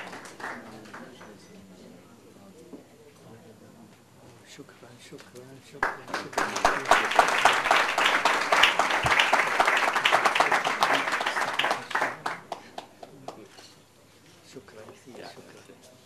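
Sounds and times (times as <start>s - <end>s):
audience applauding: 0.0s - 1.5s, 5.8s - 13.4s.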